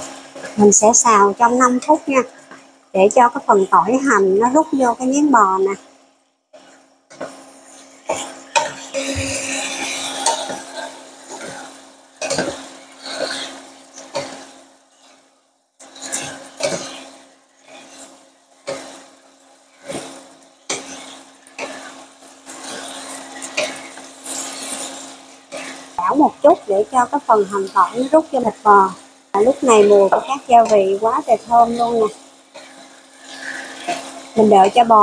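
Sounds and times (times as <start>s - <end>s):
frying hiss: 0.0s - 35.0s
wooden spatulas scraping pan: 6.6s - 14.4s, 15.9s - 17.0s, 20.7s - 28.4s, 29.4s - 35.0s.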